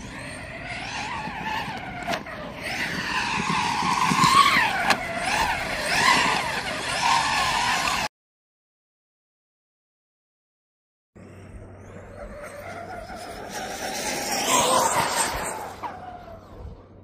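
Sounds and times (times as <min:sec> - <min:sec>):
electric rc car motor whining: 0:00.0 - 0:08.1, 0:11.8 - 0:16.9.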